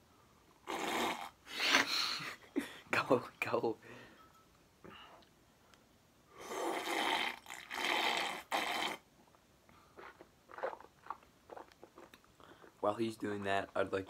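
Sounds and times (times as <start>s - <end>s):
boy slurping milk: 0.7s - 2.0s, 6.4s - 9.0s, 9.9s - 12.7s.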